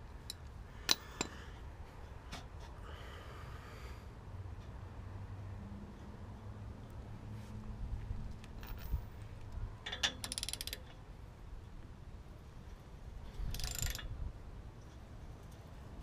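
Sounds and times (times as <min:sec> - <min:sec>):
socket ratchet clicking: 0:09.9 - 0:10.9, 0:13.4 - 0:14.1.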